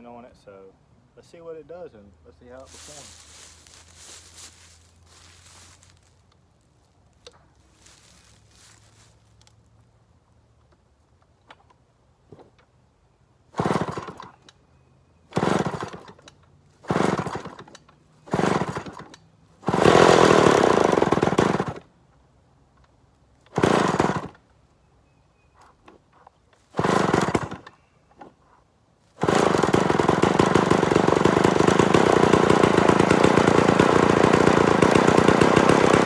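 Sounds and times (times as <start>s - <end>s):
chainsaw engine running: 2.6s - 6.0s, 13.5s - 14.3s, 15.3s - 16.2s, 16.8s - 21.8s, 23.5s - 24.4s, 26.7s - 27.8s, 29.2s - 36.0s
chainsaw cranking and sputtering: 13.5s - 14.5s, 15.3s - 21.9s, 23.4s - 24.4s, 26.6s - 27.8s, 29.2s - 36.0s.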